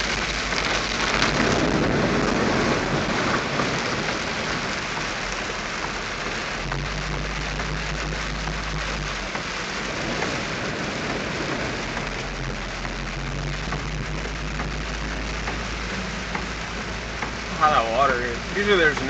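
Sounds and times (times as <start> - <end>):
car engine drone: 0.0 - 19.0
heavy rain on car windshield: 0.0 - 19.0
tires on wet road: 0.0 - 19.0.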